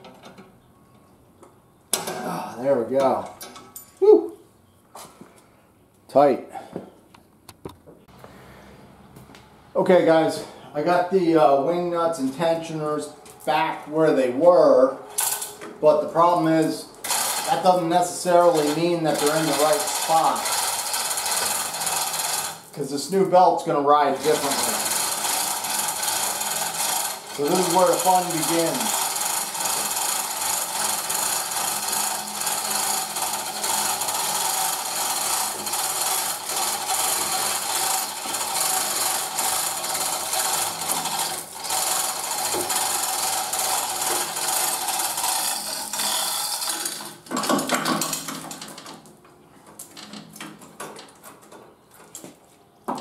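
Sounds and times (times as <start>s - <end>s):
chain hoist ratcheting: 15.2s - 15.6s, 17.0s - 22.7s, 24.1s - 49.0s.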